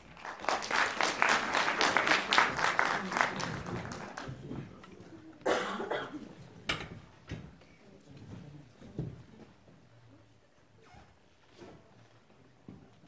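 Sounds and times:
audience applauding: 0:00.0 - 0:04.5.

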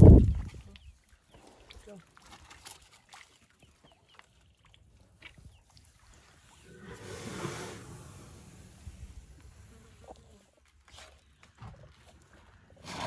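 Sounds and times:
water drips and splashes: 0:00.0 - 0:06.8
water and air rushing through trunk: 0:06.6 - 0:09.6.

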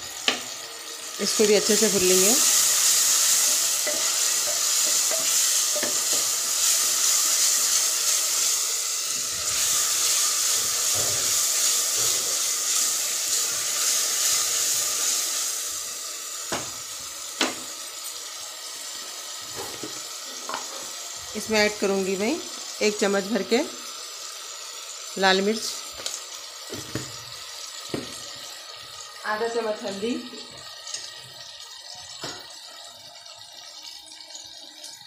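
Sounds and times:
vegetables sizzling in oil: 0:00.0 - 0:35.0
wooden spoon stirring: 0:02.5 - 0:08.2.

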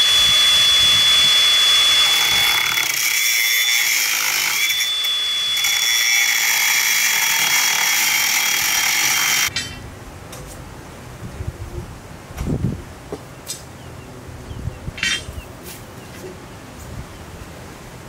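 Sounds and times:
power tool whining: 0:00.0 - 0:09.5.

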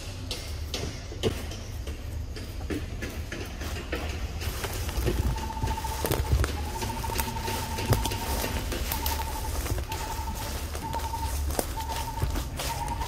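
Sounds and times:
bird trilling: 0:05.0 - 0:13.0.

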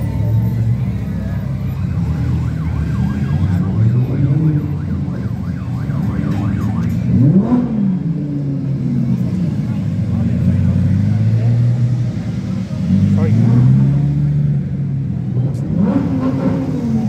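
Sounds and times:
car engine revving: 0:00.0 - 0:17.0
car engines rumbling: 0:00.0 - 0:17.0
warbling siren-like tone: 0:01.7 - 0:07.4.

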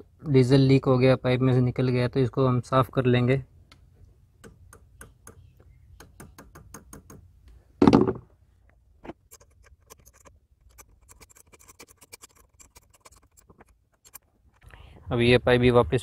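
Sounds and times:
small clicks and scratches: 0:09.0 - 0:14.7.

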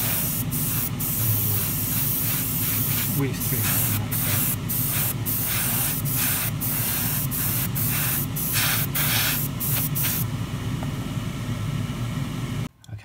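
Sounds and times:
airbrush hissing bursts: 0:00.0 - 0:10.3
extractor fan hum: 0:00.0 - 0:13.0.

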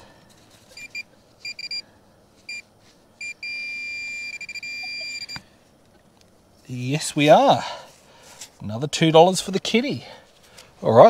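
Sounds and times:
metal detector beeps: 0:00.7 - 0:01.8, 0:02.5 - 0:05.4
metal detector long tone: 0:02.5 - 0:05.4.

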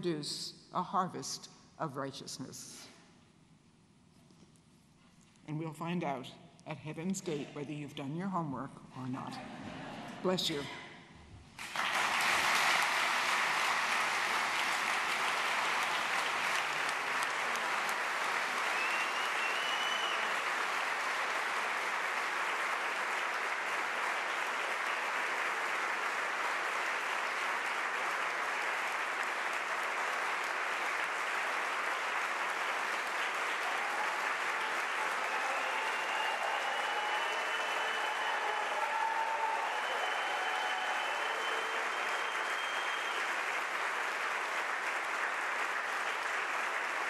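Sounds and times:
crowd applauding: 0:11.6 - 0:47.0.

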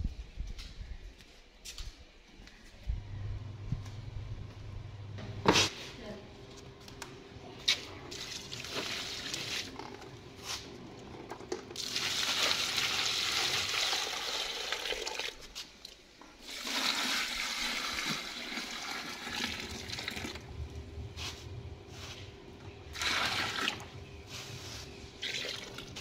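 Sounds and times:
water running: 0:08.0 - 0:09.9, 0:11.7 - 0:20.6, 0:25.2 - 0:26.0.

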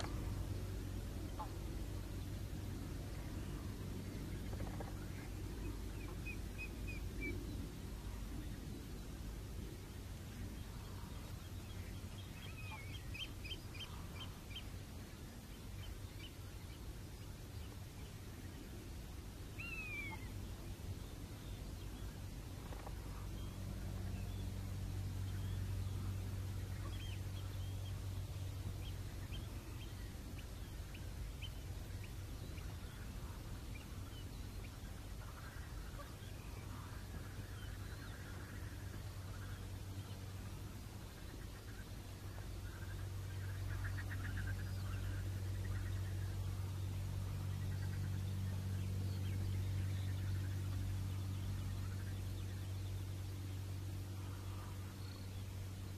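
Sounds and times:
low background rumble: 0:00.0 - 0:55.9
steady low hum: 0:00.0 - 0:55.9
bird chirping: 0:19.6 - 0:55.9.

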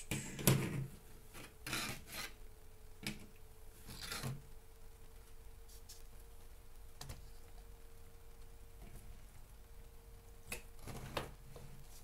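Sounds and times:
objects scraping on a desk: 0:00.1 - 0:02.4.

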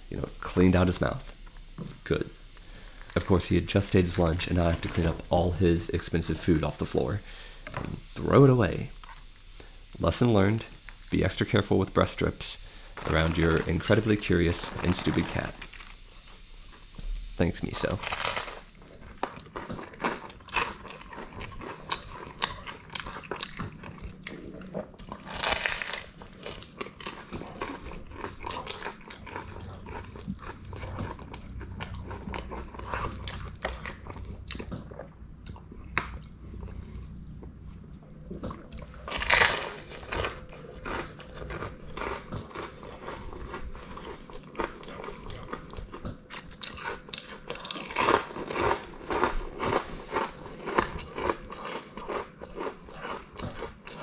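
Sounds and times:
chewing and crunching: 0:12.9 - 0:17.0, 0:17.8 - 0:54.0.

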